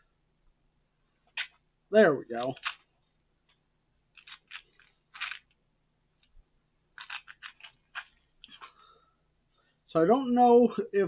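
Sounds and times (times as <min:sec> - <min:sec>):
mints rattling in plastic box: 0:02.4 - 0:02.9, 0:04.2 - 0:05.6, 0:07.0 - 0:08.7.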